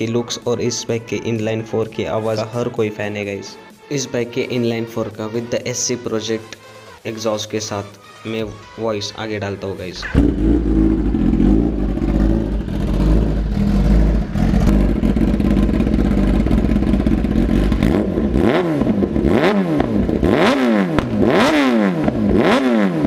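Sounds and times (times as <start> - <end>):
motorcycle engine idling: 10.0 - 19.3
engine revving: 10.0 - 23.0.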